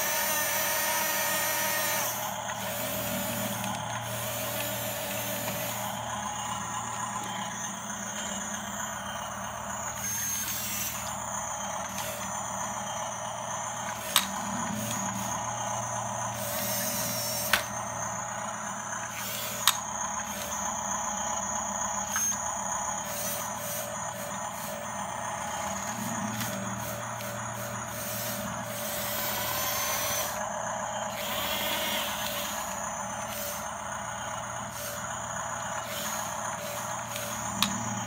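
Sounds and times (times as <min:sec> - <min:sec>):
toy motors whirring hum: 0:00.0 - 0:38.0.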